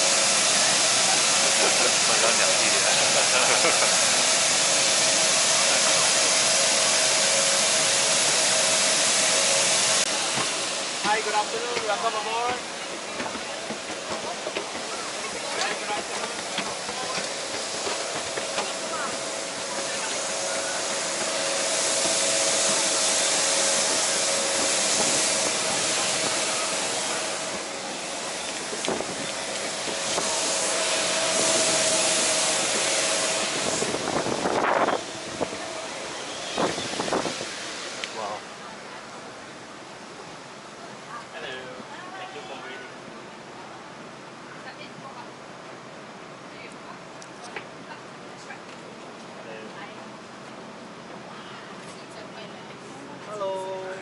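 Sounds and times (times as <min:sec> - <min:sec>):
air-handling machinery hiss: 0:00.0 - 0:38.5.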